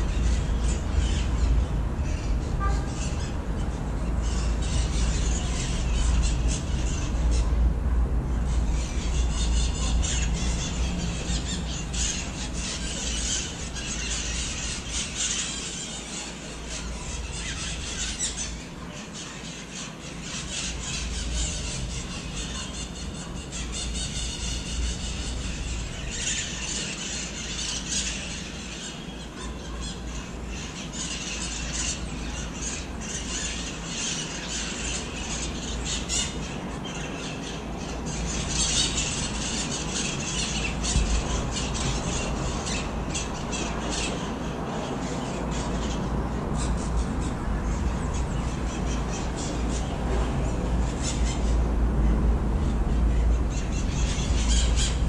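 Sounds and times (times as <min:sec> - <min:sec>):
parrots squawking: 0:00.0 - 0:07.6, 0:08.5 - 0:51.7, 0:52.9 - 0:55.0
steady low rumble: 0:00.0 - 0:15.2, 0:37.6 - 0:55.0.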